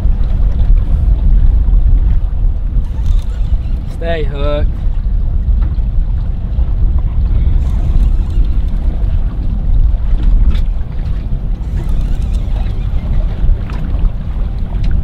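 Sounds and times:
outboard motor running: 0:00.0 - 0:15.0
wind buffeting microphone: 0:00.0 - 0:15.0
short clicks: 0:02.8 - 0:03.9, 0:11.6 - 0:13.0.

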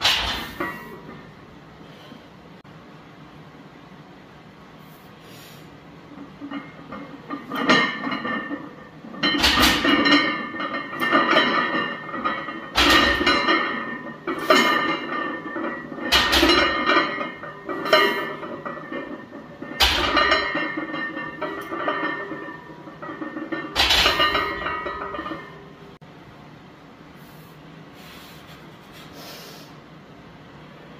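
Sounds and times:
barbell thudding down: 0:00.0 - 0:01.0, 0:09.1 - 0:25.5
barbell clanking on steel pins: 0:00.0 - 0:01.4, 0:06.1 - 0:25.9
iron plates ringing and rattling: 0:06.0 - 0:26.0.

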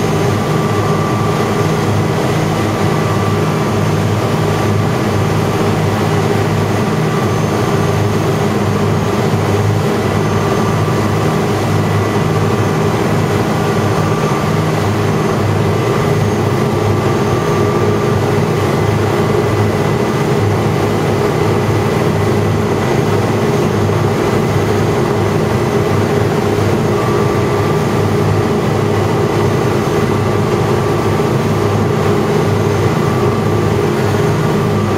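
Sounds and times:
powerboat engine running: 0:00.0 - 0:34.9
rush of churning wake: 0:00.0 - 0:34.9.

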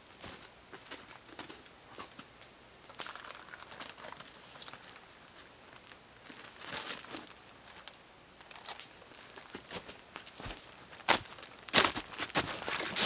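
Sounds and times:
plastic bag crinkling: 0:02.9 - 0:13.0
boots crunching on snow: 0:09.5 - 0:13.0.

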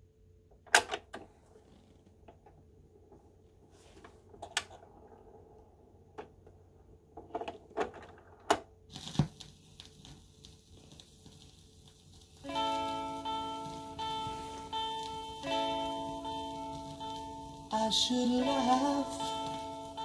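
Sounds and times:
record hiss and crackle: 0:00.0 - 0:20.0.

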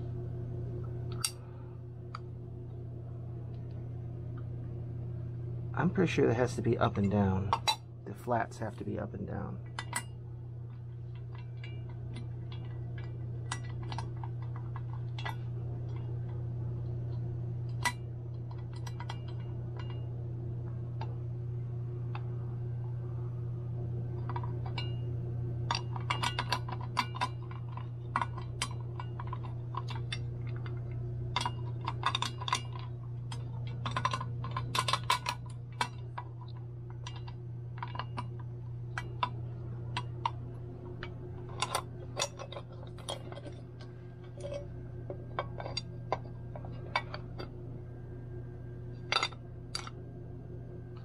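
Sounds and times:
steady low hum: 0:00.0 - 0:51.0
small metal parts clinking: 0:25.7 - 0:40.4, 0:49.0 - 0:50.0.

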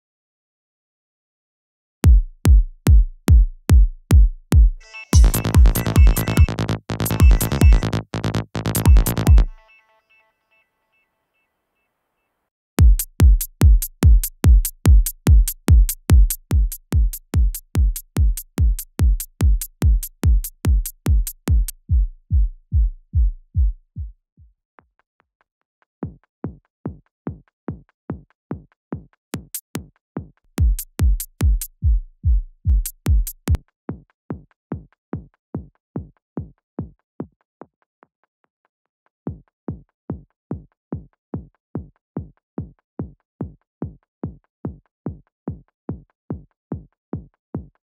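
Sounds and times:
low kick drum thuds: 0:02.0 - 0:09.5, 0:12.8 - 0:24.5, 0:30.6 - 0:33.6
electronic drum beat: 0:02.1 - 0:09.6, 0:12.8 - 0:24.1, 0:29.4 - 0:29.9, 0:30.6 - 0:33.6.

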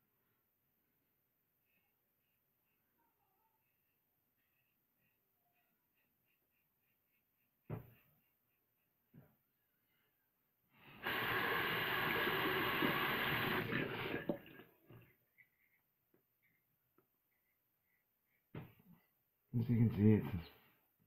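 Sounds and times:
bathroom tap running: 0:10.9 - 0:15.1.

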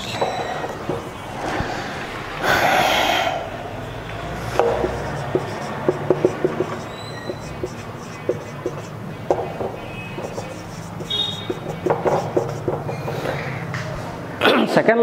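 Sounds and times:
marker squeaking on whiteboard: 0:00.0 - 0:01.9, 0:03.8 - 0:14.0.

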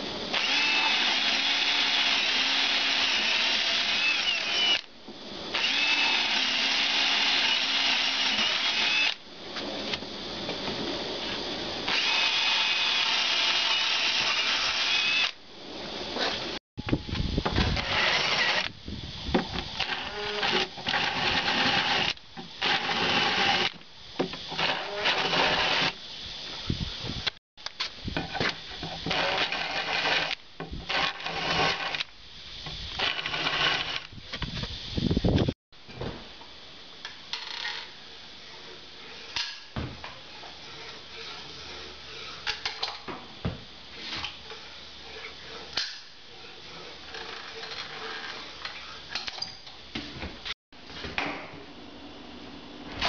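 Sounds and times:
cordless drill boring wood: 0:00.3 - 0:04.9, 0:05.5 - 0:09.2, 0:11.9 - 0:15.4, 0:17.6 - 0:18.8, 0:19.6 - 0:23.8, 0:24.5 - 0:26.0, 0:29.0 - 0:32.1, 0:32.9 - 0:34.1, 0:46.4 - 0:48.5.

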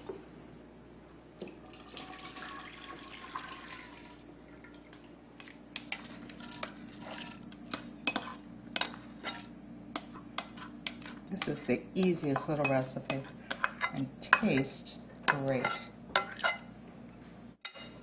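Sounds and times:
low steady hum: 0:00.0 - 0:18.0
liquid mixture pouring into dish: 0:01.6 - 0:04.9.

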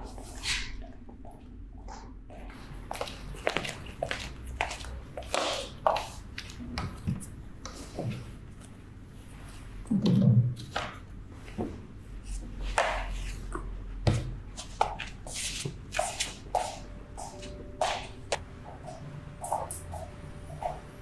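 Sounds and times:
light taps and scuffs: 0:10.6 - 0:20.8.

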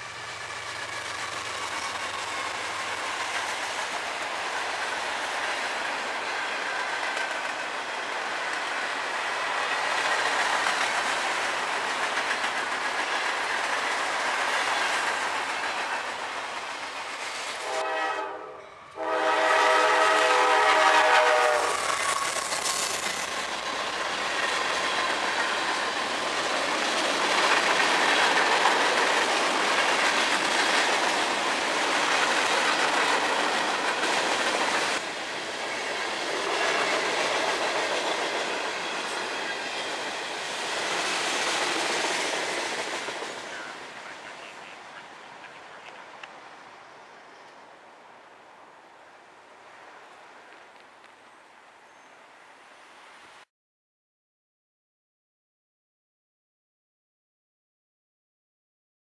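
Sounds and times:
freight train cars rolling: 0:00.0 - 0:46.4
locomotive air horn: 0:17.6 - 0:21.8.

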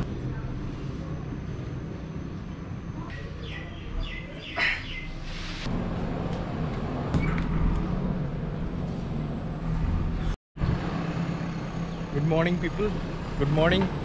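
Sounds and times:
birds chirping: 0:02.2 - 0:05.6.

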